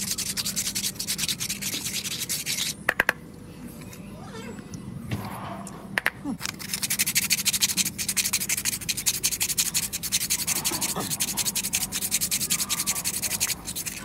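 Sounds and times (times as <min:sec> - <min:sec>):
sandpaper scratching coconut shell: 0:00.0 - 0:02.8, 0:06.4 - 0:14.0.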